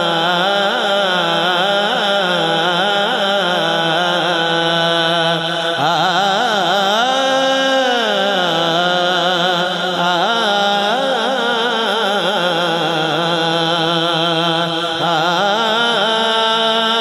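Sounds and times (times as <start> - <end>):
man singing devotional poem: 0.0 - 17.0.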